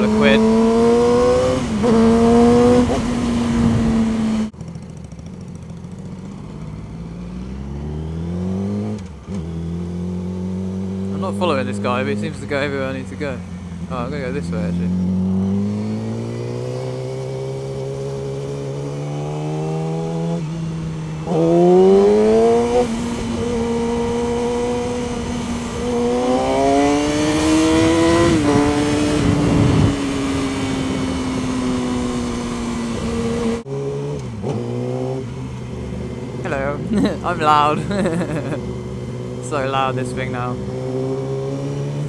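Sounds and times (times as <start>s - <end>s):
motorcycle engine revving: 0.0s - 42.0s.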